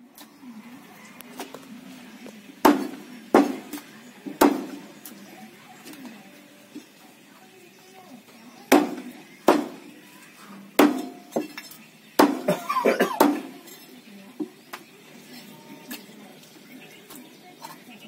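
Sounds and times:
cleaver chopping on wooden block: 0:02.7 - 0:03.8, 0:04.4 - 0:04.8, 0:08.7 - 0:09.8, 0:10.8 - 0:11.5, 0:12.2 - 0:12.6.

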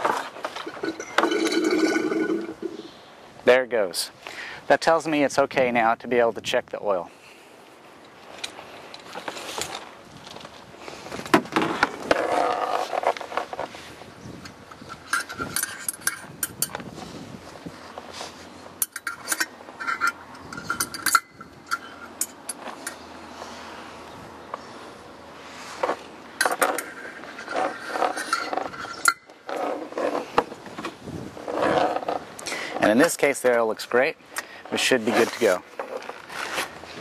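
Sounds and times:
metallic clinks and rattles: 0:00.6 - 0:02.8, 0:14.8 - 0:16.8, 0:18.8 - 0:23.0, 0:26.4 - 0:30.1.

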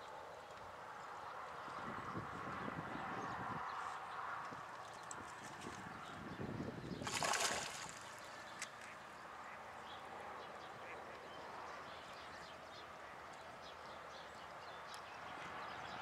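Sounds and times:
fish splashing at surface: 0:07.0 - 0:08.2.

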